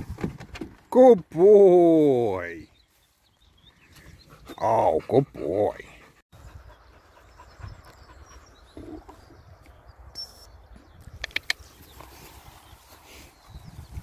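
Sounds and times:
sharp clicks: 0:11.0 - 0:11.7
footsteps on dry earth and grass: 0:11.6 - 0:14.0.

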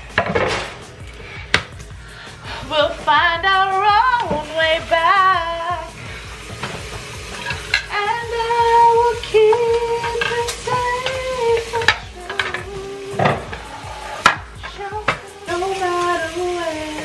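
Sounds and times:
running tap water: 0:00.0 - 0:17.0
song with long sung notes: 0:00.0 - 0:17.0
dishes clattering: 0:00.1 - 0:00.8, 0:06.6 - 0:07.9, 0:09.5 - 0:15.2.

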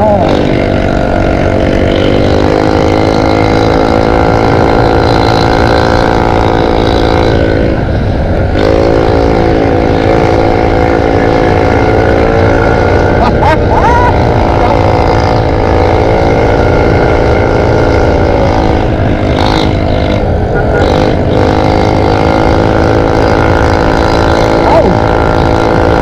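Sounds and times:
scooter engine running: 0:00.0 - 0:26.0.

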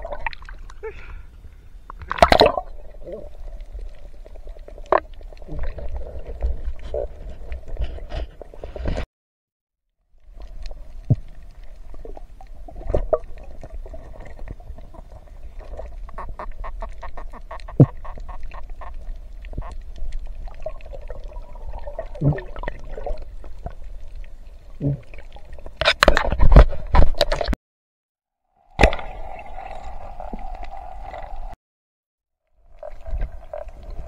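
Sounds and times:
underwater clicks and knocks: 0:25.7 - 0:27.6.

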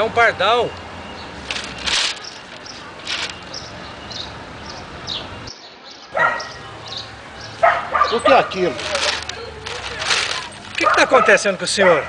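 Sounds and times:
sparrow chirping: 0:01.0 - 0:09.6
newspaper pages rustling: 0:01.4 - 0:03.8, 0:08.2 - 0:11.2.

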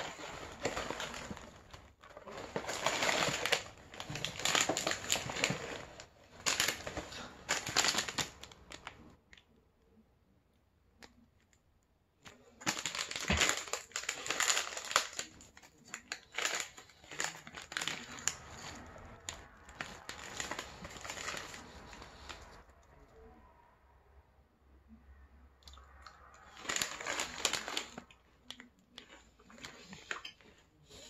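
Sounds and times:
plastic wrapper crinkling: 0:00.0 - 0:09.1, 0:12.3 - 0:22.7, 0:25.7 - 0:30.5.

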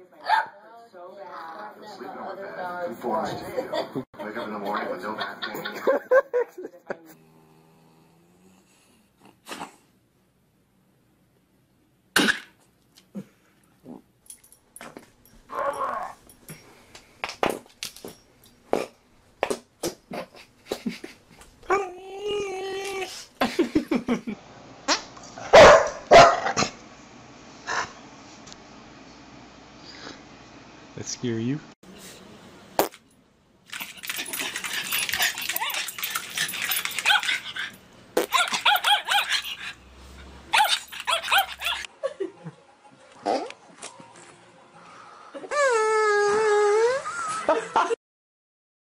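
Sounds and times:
dog whining: 0:15.5 - 0:16.2, 0:40.5 - 0:41.9, 0:45.4 - 0:47.4
dog farting: 0:32.8 - 0:33.0
puppy yipping: 0:38.2 - 0:39.6, 0:40.5 - 0:41.9.

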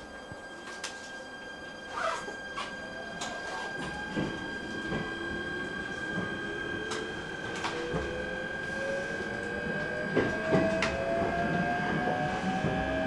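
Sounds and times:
steady high tone: 0:00.0 - 0:13.0
train motors whining: 0:00.0 - 0:13.0
wheels clacking on rails: 0:01.9 - 0:13.0.

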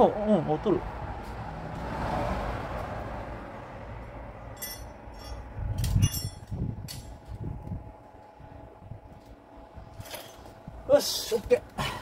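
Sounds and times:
steady low hum: 0:03.4 - 0:12.0
metal tools clinking: 0:04.5 - 0:07.1, 0:10.0 - 0:10.5.

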